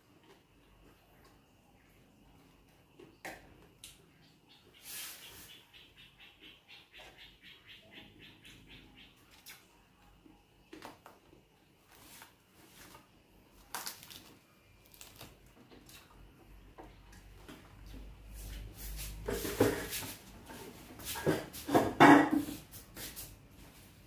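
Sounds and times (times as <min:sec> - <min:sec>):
person chewing crispy food: 0:13.6 - 0:16.2
knocks and rustles: 0:17.4 - 0:22.8.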